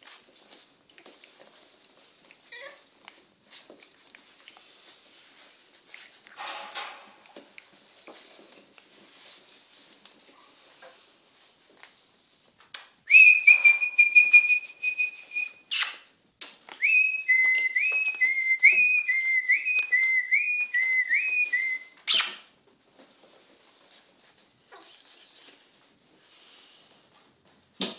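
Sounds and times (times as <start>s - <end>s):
person whistling: 13.1s - 15.6s, 16.8s - 22.0s.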